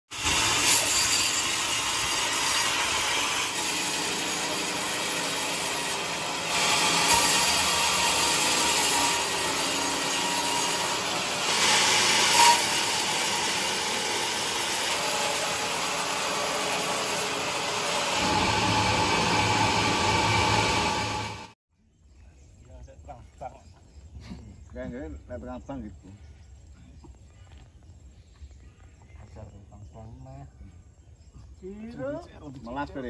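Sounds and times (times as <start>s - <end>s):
band saw cutting log: 0.1s - 21.6s.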